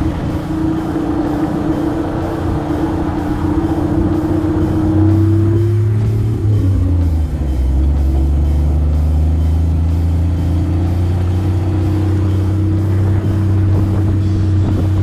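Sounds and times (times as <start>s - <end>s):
car engine running: 0.0s - 15.0s
music playing: 0.0s - 15.0s.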